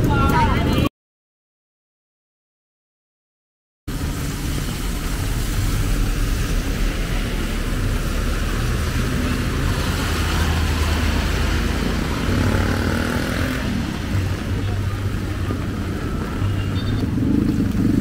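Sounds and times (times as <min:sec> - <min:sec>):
hiss of wet street: 0:03.9 - 0:12.2
vehicle engines humming: 0:03.9 - 0:18.0.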